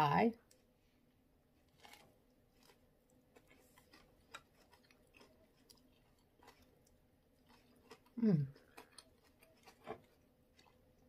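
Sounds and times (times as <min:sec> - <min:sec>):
chewing crispy meat: 0:01.5 - 0:11.0.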